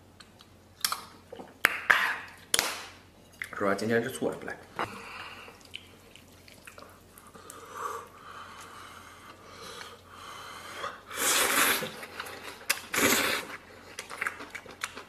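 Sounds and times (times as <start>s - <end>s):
person slurping noodles: 11.0s - 12.1s, 12.9s - 13.6s.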